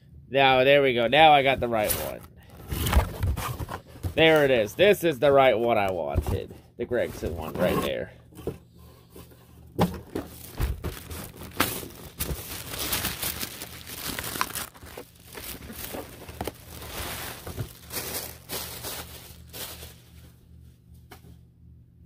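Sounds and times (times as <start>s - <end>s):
plastic wrapping crinkling and tearing: 10.2s - 20.2s.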